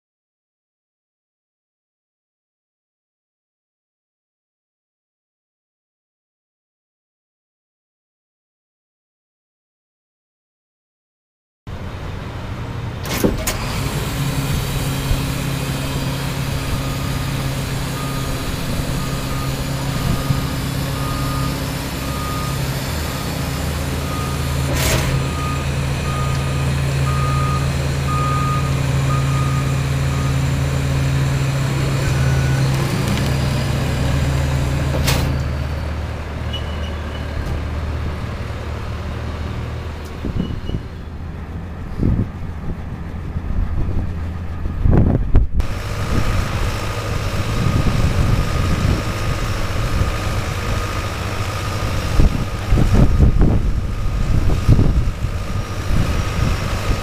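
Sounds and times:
heavy vehicle engine running: 11.7 - 57.0
reversing alarm beeping: 15.4 - 34.8, 36.4 - 37.4, 46.8 - 53.7.

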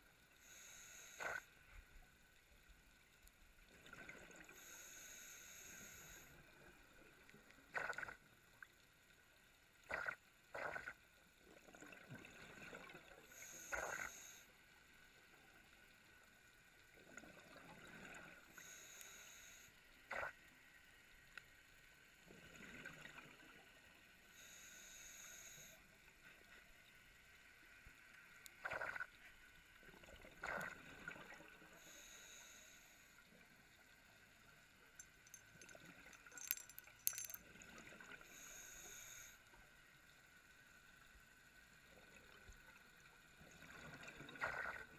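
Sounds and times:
regulator inhalation hiss: 0.4 - 1.4, 4.6 - 6.3, 13.3 - 14.5, 18.6 - 19.7, 24.4 - 25.8, 31.8 - 33.2, 38.2 - 39.4
exhaled bubbles gurgling: 7.7 - 8.2, 9.8 - 13.2, 28.6 - 29.2, 29.8 - 31.8, 43.4 - 44.9.

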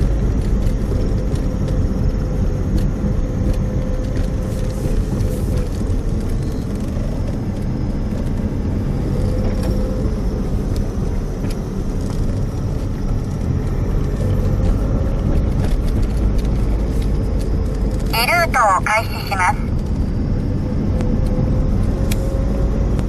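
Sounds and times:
car tyres and engine rumble: 0.0 - 18.1
faint steady hum: 18.0 - 19.7.

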